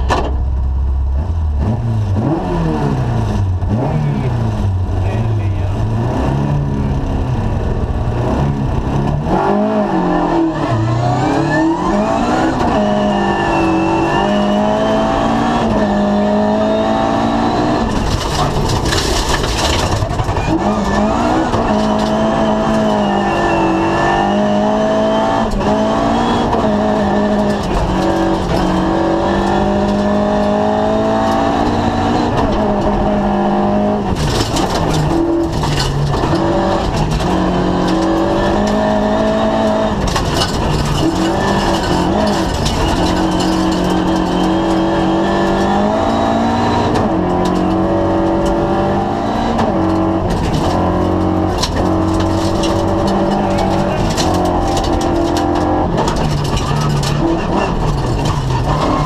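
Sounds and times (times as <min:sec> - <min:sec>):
rally car engine revving: 0:00.0 - 0:59.0
gravel noise: 0:17.8 - 0:23.9, 0:34.0 - 0:45.9, 0:49.8 - 0:59.0.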